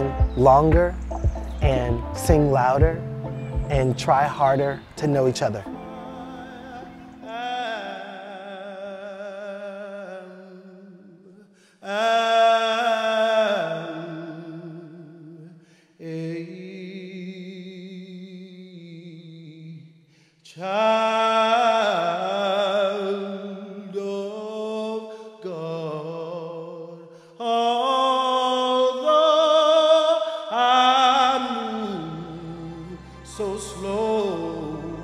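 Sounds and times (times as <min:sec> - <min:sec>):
man singing with vibrato: 0:00.0 - 0:35.0.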